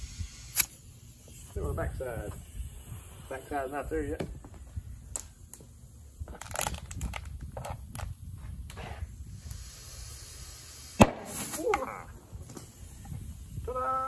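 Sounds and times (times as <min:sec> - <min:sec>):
compressed air hissing: 0:00.0 - 0:06.7, 0:07.8 - 0:14.0
tire bead popping: 0:04.2 - 0:09.8.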